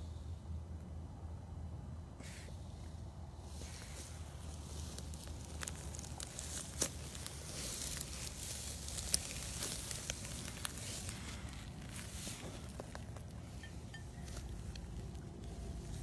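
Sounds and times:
dry hay crackling and rustling: 0:03.4 - 0:16.0.

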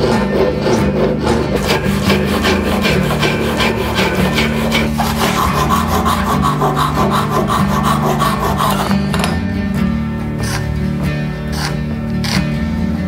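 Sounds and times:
handsaw cutting wood: 0:00.0 - 0:09.3, 0:10.4 - 0:10.8, 0:11.5 - 0:12.6.

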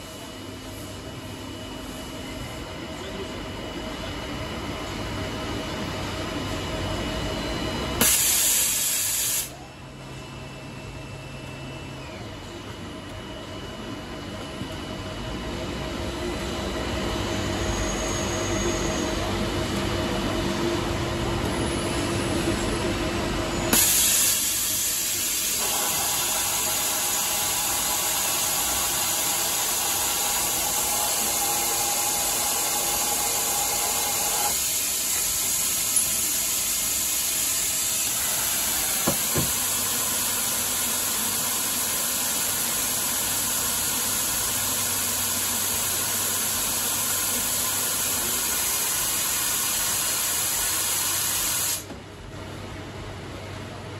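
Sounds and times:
lathe motor whine: 0:09.8 - 0:48.6.

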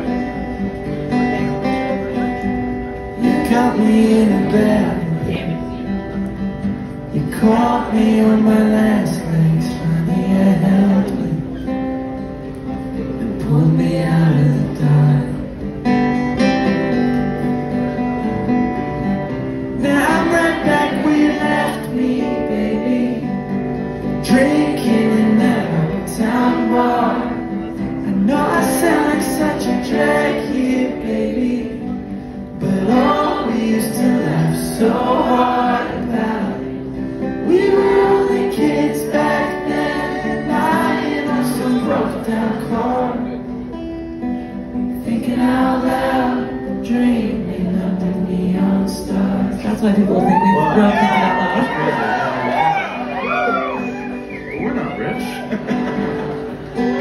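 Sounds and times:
acoustic guitar: 0:00.0 - 0:57.0
person singing: 0:19.8 - 0:43.6.

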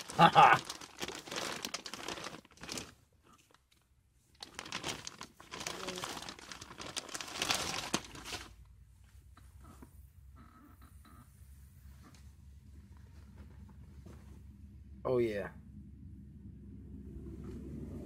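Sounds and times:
plastic bag crinkling: 0:00.0 - 0:03.6, 0:04.3 - 0:08.6.

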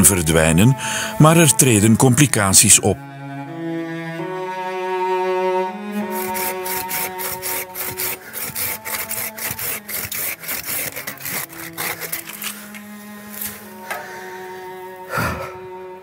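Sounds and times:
hand saw cutting branch: 0:06.0 - 0:14.5.

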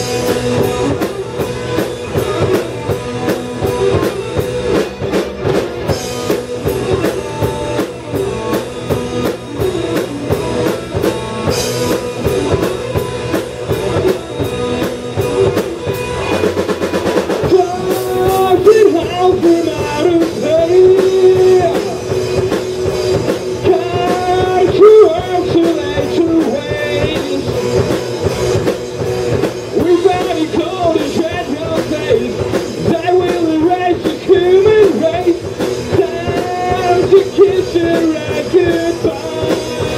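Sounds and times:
rock band playing: 0:00.0 - 0:39.9
person singing: 0:17.4 - 0:22.5, 0:23.2 - 0:28.1, 0:29.8 - 0:39.9.

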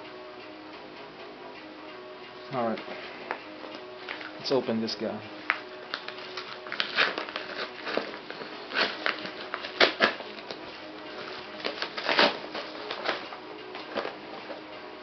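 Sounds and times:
paper envelope tearing and rustling: 0:05.9 - 0:14.2.

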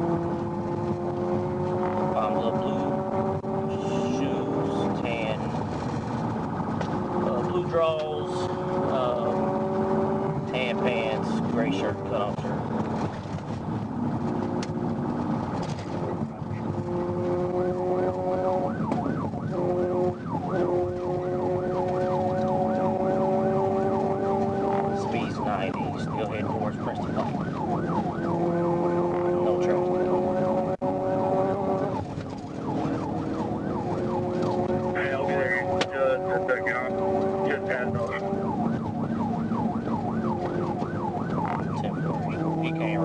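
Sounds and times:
police siren yelping: 0:00.0 - 0:05.7, 0:16.2 - 0:43.0
car engine and road noise: 0:00.0 - 0:43.0.

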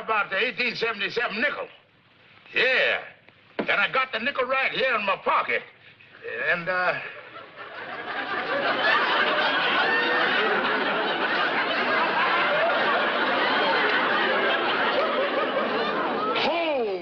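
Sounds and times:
audience laughter: 0:07.0 - 0:16.5.

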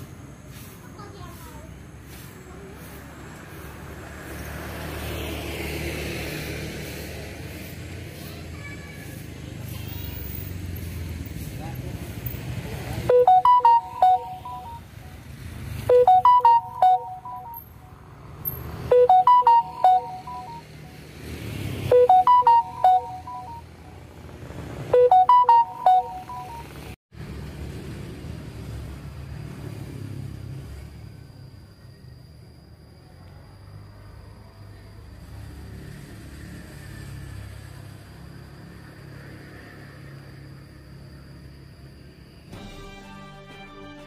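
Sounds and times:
electronic beeping jingle: 0:13.1 - 0:15.2, 0:15.9 - 0:18.0, 0:18.9 - 0:21.0, 0:21.9 - 0:24.0, 0:24.9 - 0:27.0.

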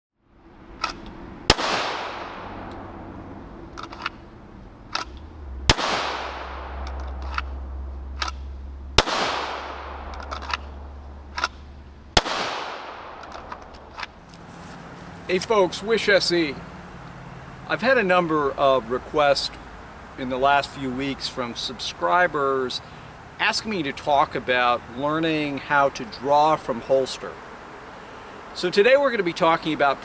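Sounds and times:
handgun shots with echo: 0:00.8 - 0:02.7, 0:04.9 - 0:07.6, 0:09.0 - 0:11.6, 0:12.2 - 0:14.1
sharp clicks and cracks: 0:00.8 - 0:02.8, 0:03.7 - 0:04.2, 0:04.9 - 0:14.4.

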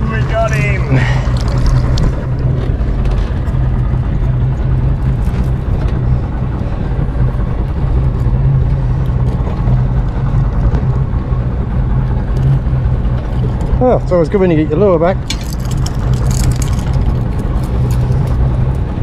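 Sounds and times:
boat engine humming: 0:00.0 - 0:19.0
water noise: 0:00.0 - 0:19.0
wind: 0:00.0 - 0:19.0.

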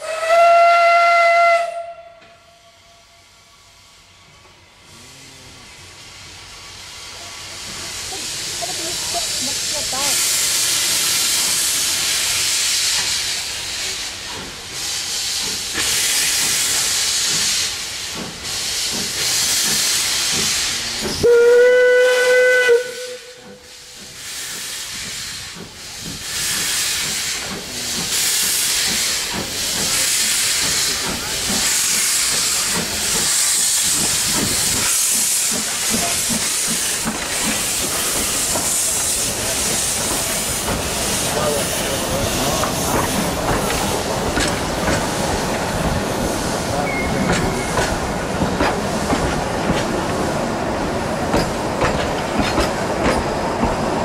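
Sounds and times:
steam whistle blast: 0:00.0 - 0:03.1, 0:21.2 - 0:23.6
steam locomotive hissing: 0:00.0 - 0:54.0.

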